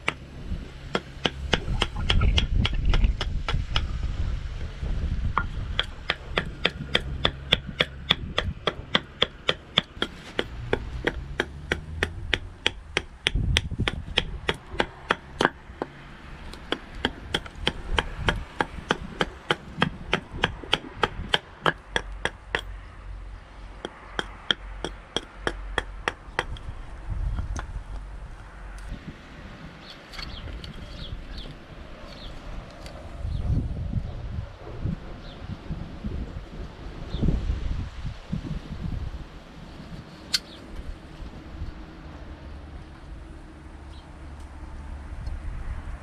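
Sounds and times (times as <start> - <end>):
knife chopping wood: 0.9 - 3.9, 5.4 - 16.0.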